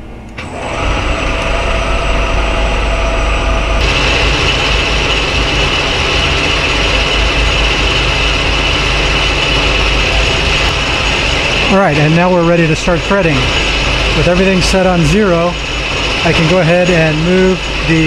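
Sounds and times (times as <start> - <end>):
metal lathe humming: 0.0 - 18.0.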